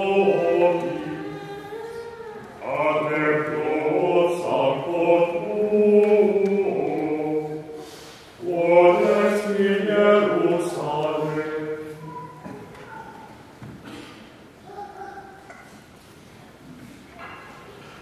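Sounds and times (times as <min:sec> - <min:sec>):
men singing chant: 0:00.0 - 0:01.6, 0:02.6 - 0:07.8, 0:08.4 - 0:11.9.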